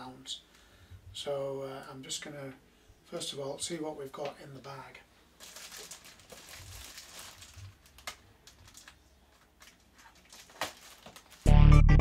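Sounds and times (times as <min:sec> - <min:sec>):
plastic bag crinkling: 0:05.4 - 0:11.5.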